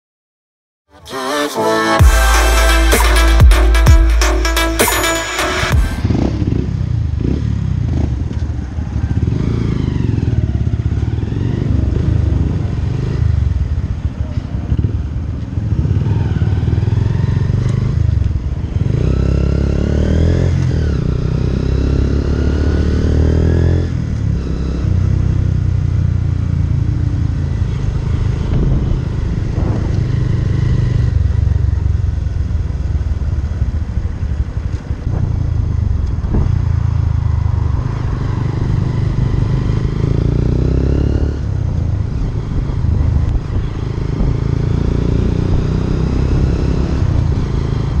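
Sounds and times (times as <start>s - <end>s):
motorcycle engine accelerating: 2.0s - 48.0s.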